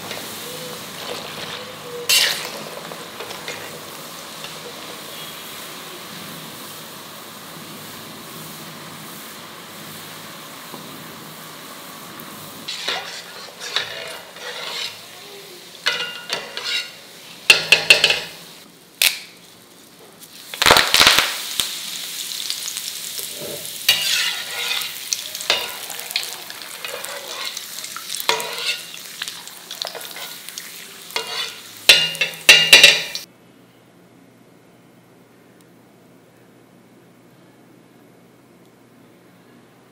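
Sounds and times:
hot oil sizzling: 0.0s - 33.3s.

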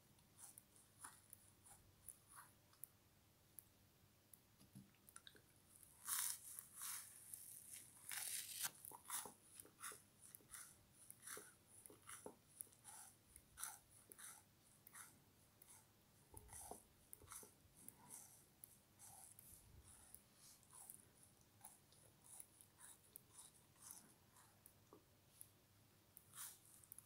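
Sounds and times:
frozen material crunching: 7.3s - 8.7s.

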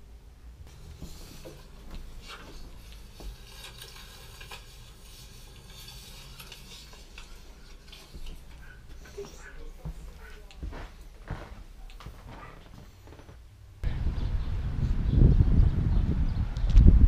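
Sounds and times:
rustling and clattering handling: 0.7s - 13.4s.

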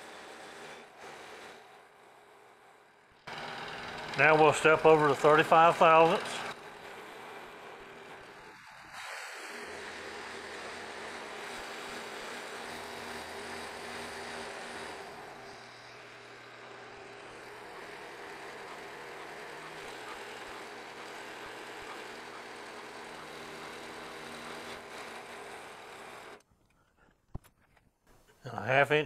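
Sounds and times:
milling machine cutting metal: 3.3s - 26.4s.

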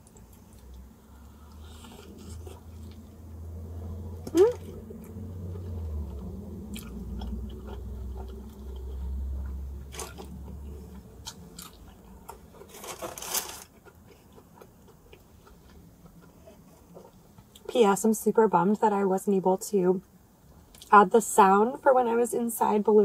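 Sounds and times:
biting and chewing pizza: 0.0s - 3.2s, 4.2s - 17.6s
low rumble: 0.8s - 12.4s.

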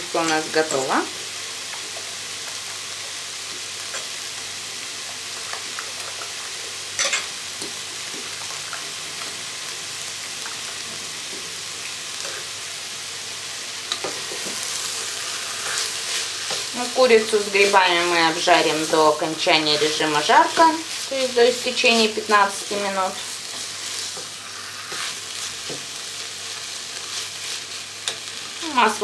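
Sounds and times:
food sizzling in a pot: 0.0s - 29.0s.

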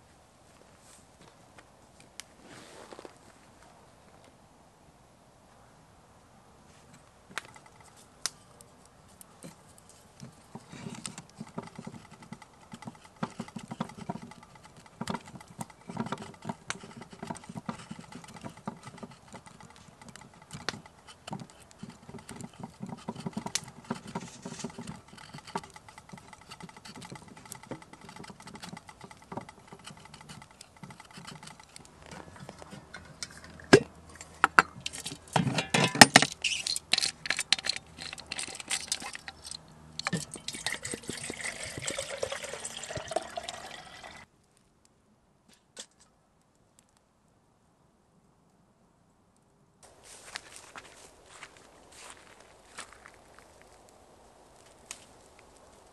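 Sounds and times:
metal kettle lid clatter: 32.4s - 43.5s.

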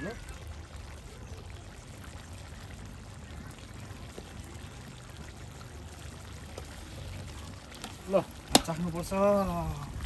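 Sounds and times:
running water: 0.0s - 10.0s.

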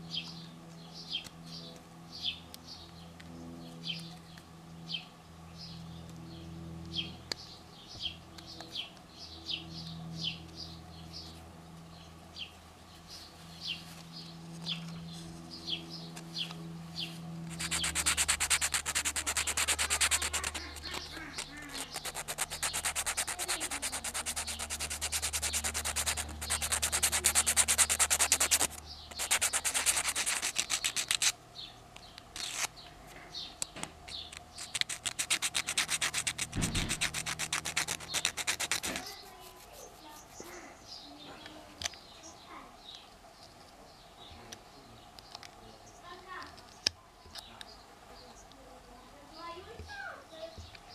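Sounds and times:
sandpaper rubbing on wood: 17.5s - 31.4s, 32.4s - 32.7s, 34.6s - 40.4s.

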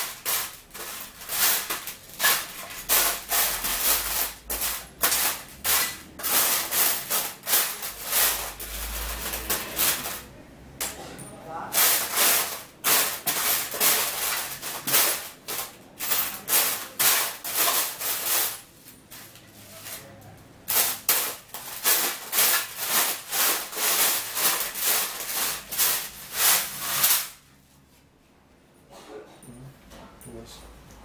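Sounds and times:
screws rattling in metal tray: 0.0s - 10.3s, 11.7s - 18.7s, 20.7s - 27.4s.

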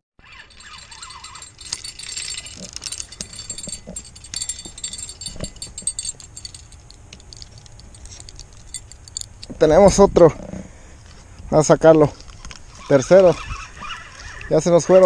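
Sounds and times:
fishing reel jingling and clicking: 0.2s - 10.0s.

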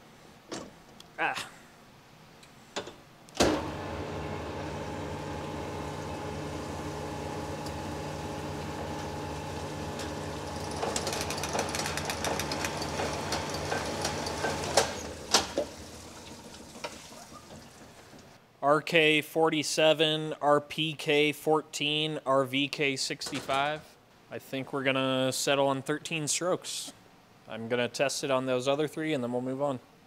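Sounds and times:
motor hum: 3.4s - 18.3s
scratchy rattle of honing: 4.8s - 16.9s
machine clunks: 9.9s - 15.7s.

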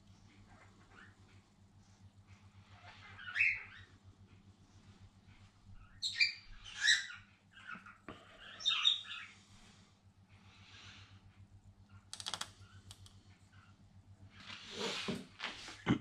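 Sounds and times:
faint low hum: 0.0s - 16.0s
cockatiels chirping: 2.7s - 3.9s, 5.8s - 9.3s.

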